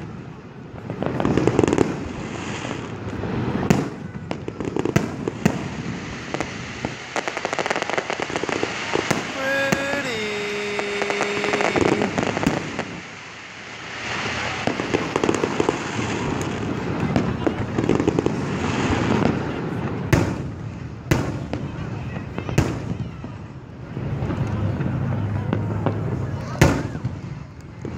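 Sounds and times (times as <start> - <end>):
fireworks bangs and crackling: 0.0 - 27.9
drawn-out falling voice: 9.0 - 12.4.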